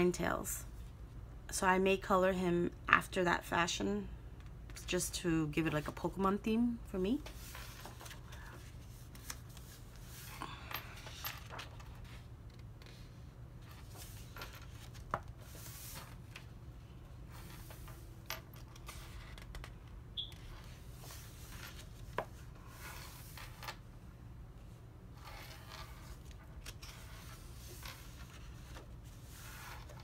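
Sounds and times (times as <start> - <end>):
paper pages rustling: 7.4 - 10.2.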